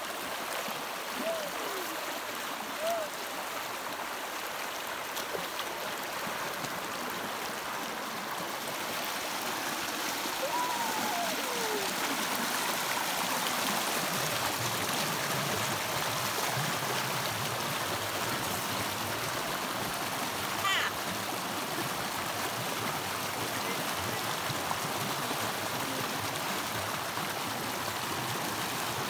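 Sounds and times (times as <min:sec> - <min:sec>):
stream rushing over rocks: 0:00.0 - 0:29.0
falling bird call: 0:20.6 - 0:21.0.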